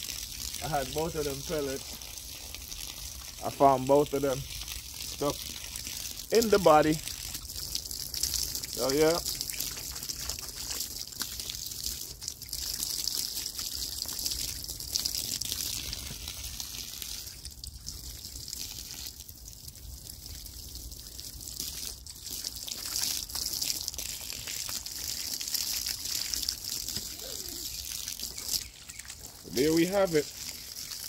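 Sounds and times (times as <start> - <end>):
hose water splashing: 0.0 - 31.0.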